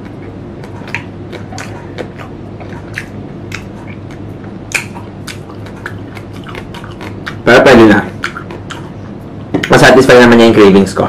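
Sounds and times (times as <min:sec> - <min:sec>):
crunchy chewing of mango: 0:00.0 - 0:09.8
steady low hum: 0:00.0 - 0:11.0.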